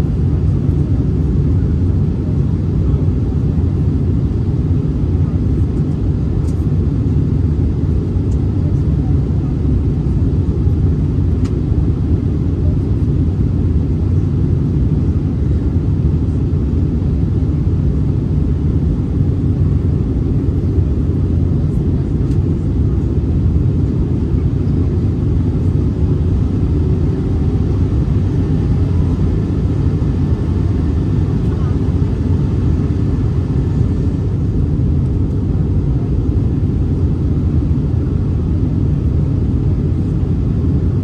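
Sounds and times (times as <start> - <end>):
airliner cabin engine rumble: 0.0 - 41.0.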